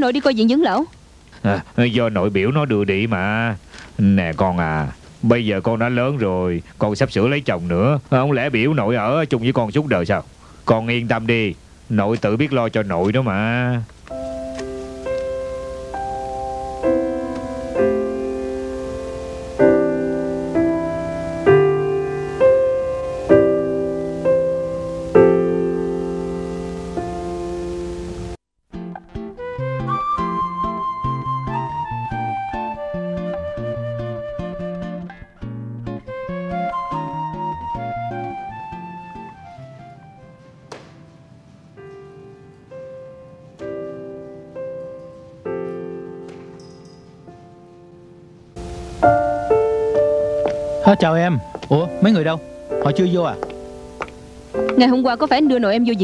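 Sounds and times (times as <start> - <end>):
slow soft piano chords: 14.1 - 28.4, 37.8 - 56.0.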